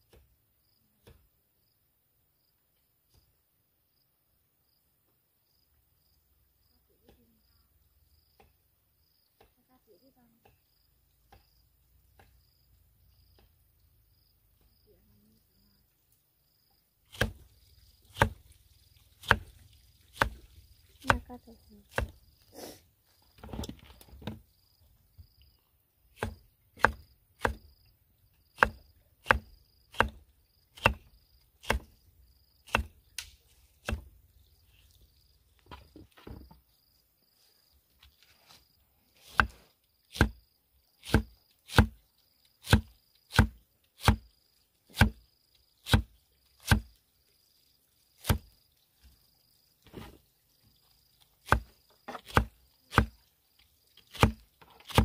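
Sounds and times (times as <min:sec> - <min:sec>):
cleaver chopping on wooden block: 0:17.1 - 0:17.4, 0:18.1 - 0:18.4, 0:19.2 - 0:19.5, 0:20.2 - 0:20.4, 0:21.9 - 0:22.2, 0:26.2 - 0:27.7, 0:28.6 - 0:30.2, 0:30.8 - 0:31.9, 0:32.7 - 0:33.0, 0:33.8 - 0:34.1, 0:39.3 - 0:40.4, 0:41.0 - 0:42.0, 0:42.6 - 0:44.2, 0:44.9 - 0:45.2, 0:45.9 - 0:46.9, 0:48.2 - 0:48.5, 0:51.4 - 0:53.2, 0:54.1 - 0:55.0.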